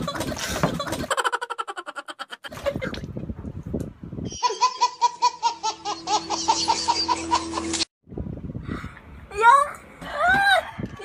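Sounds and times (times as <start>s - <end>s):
women laughing: 0.0s - 2.8s, 4.4s - 7.8s
baby laughing: 4.4s - 7.8s.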